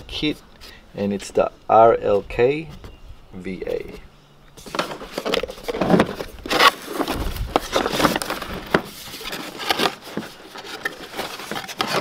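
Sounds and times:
cardboard crackling and scraping: 0:04.6 - 0:12.0
cardboard flaps tearing: 0:04.6 - 0:12.0.

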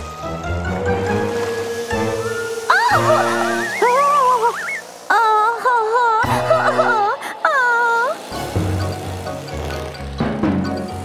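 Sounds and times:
cartoon background music: 0:00.0 - 0:04.8, 0:06.2 - 0:07.2, 0:08.0 - 0:11.0.

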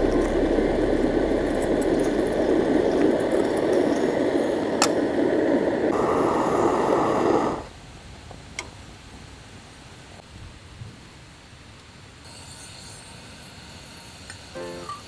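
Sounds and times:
moka pot bubbling: 0:00.0 - 0:07.7
pressure burner hissing: 0:00.0 - 0:07.7.

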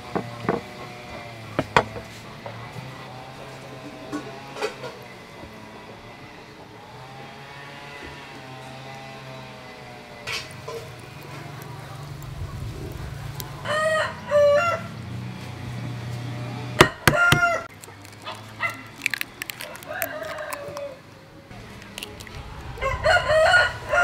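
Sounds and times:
rooster crowing: 0:13.6 - 0:15.0, 0:16.8 - 0:17.7, 0:19.4 - 0:21.0, 0:22.6 - 0:24.0.

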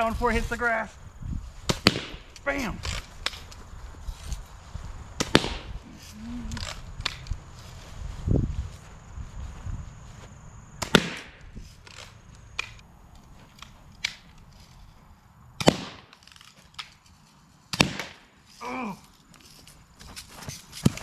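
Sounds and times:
bb gun cracks: 0:01.7 - 0:03.6, 0:05.2 - 0:05.8, 0:06.6 - 0:07.4, 0:10.8 - 0:12.8, 0:13.6 - 0:14.4, 0:15.6 - 0:17.0, 0:17.7 - 0:18.3.

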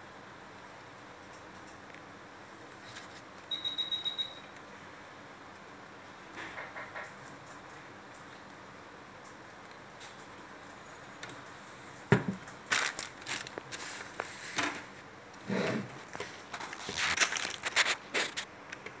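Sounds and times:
plastic bags crinkling: 0:12.6 - 0:14.3, 0:16.5 - 0:18.5
paper rustling: 0:12.7 - 0:15.0, 0:16.0 - 0:18.5.

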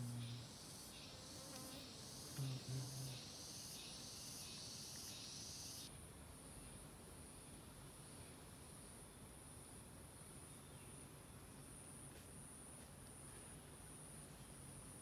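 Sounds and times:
low bee buzzes: 0:00.0 - 0:05.5
honey bees buzzing: 0:00.0 - 0:05.6
high insect drone: 0:00.0 - 0:05.9.

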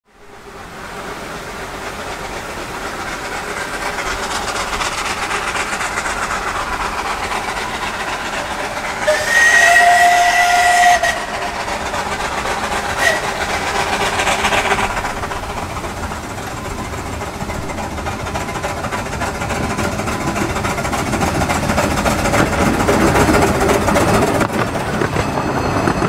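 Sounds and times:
steam locomotive chuffing: 0:00.1 - 0:26.0
two-note steam whistle: 0:09.0 - 0:11.7, 0:13.0 - 0:14.6.

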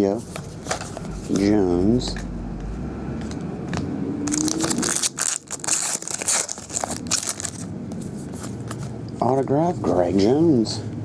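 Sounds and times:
foil wrapper crinkling: 0:04.3 - 0:07.7
handling of cards: 0:04.3 - 0:09.2.

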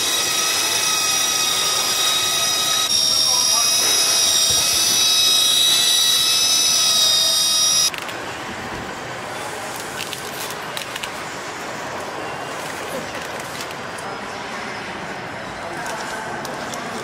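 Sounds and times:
pneumatic tool whine: 0:00.0 - 0:07.9.

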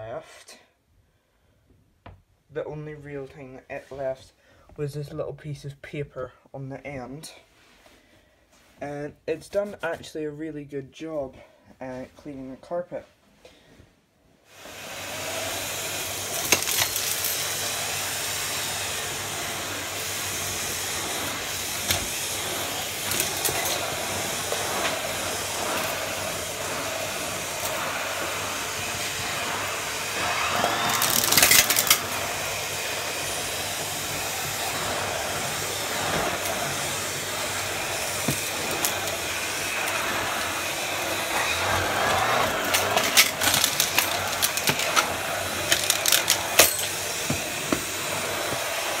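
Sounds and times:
vacuum cleaner running: 0:14.5 - 0:49.0
debris clicking in vacuum: 0:30.7 - 0:32.0, 0:42.1 - 0:47.0.

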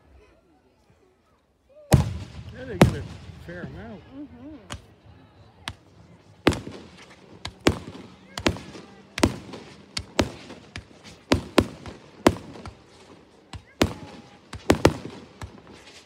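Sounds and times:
firework shells bursting: 0:05.7 - 0:16.0.

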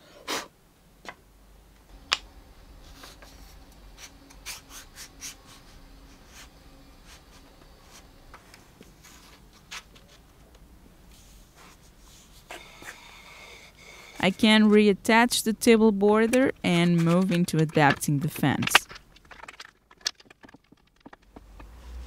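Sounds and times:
faint rubbing and scraping: 0:02.7 - 0:14.8.

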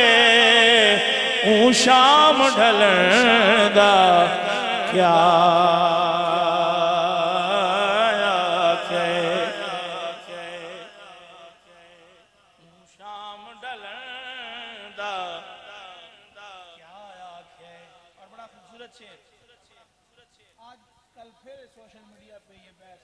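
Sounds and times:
man singing unaccompanied: 0:00.0 - 0:18.0.

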